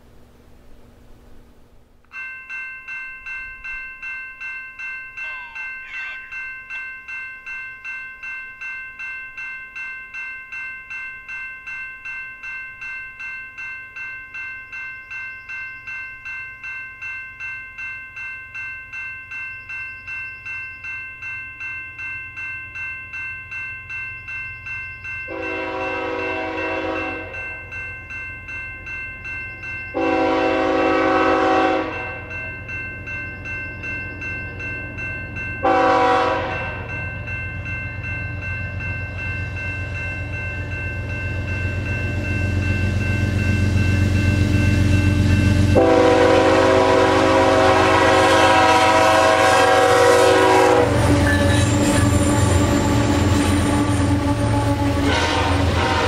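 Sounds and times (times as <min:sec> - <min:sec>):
crossing bell ringing: 0:02.1 - 0:56.0
train rumble: 0:23.6 - 0:56.0
locomotive air horn blasts: 0:25.3 - 0:27.4, 0:30.0 - 0:32.2, 0:35.6 - 0:36.8, 0:45.8 - 0:51.5, 0:53.6 - 0:56.0.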